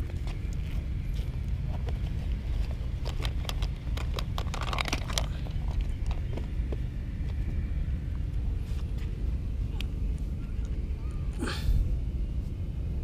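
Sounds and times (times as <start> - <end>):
steady low rumble: 0.0 - 13.0
backpack clicks: 3.0 - 6.4.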